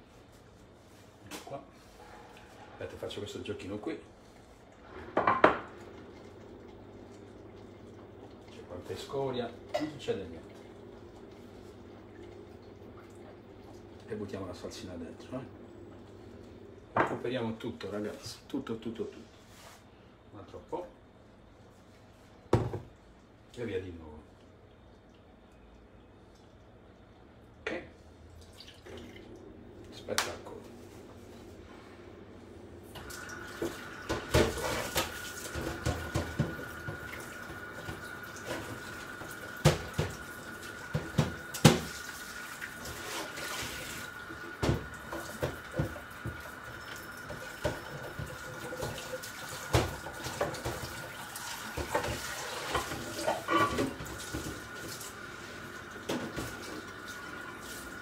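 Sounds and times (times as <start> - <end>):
things clattering in sink: 4.9 - 5.8, 33.0 - 42.1, 42.8 - 55.2, 56.0 - 57.0
tap running into sink: 33.0 - 42.0, 42.8 - 55.1, 56.0 - 57.0.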